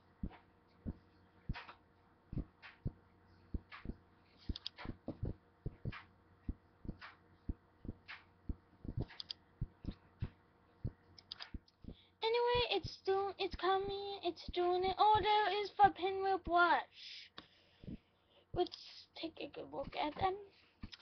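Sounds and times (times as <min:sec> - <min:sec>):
faint low hum: 0:00.0 - 0:21.0
soft thumps and knocks: 0:03.6 - 0:08.2.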